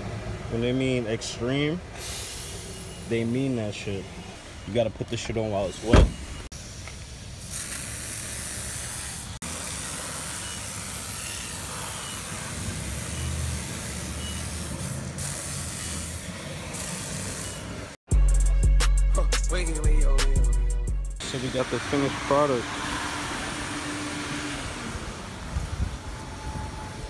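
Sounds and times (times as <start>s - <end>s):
aerosol spray hissing: 6.6s - 12.7s
music with heavy bass: 18.1s - 21.2s.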